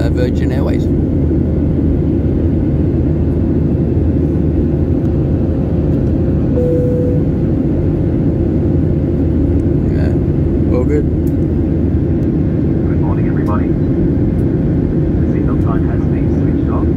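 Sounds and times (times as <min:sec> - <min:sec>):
jet airliner cabin noise: 0:00.0 - 0:16.9
faint steady hum: 0:06.0 - 0:08.2
brief tone: 0:06.5 - 0:07.4.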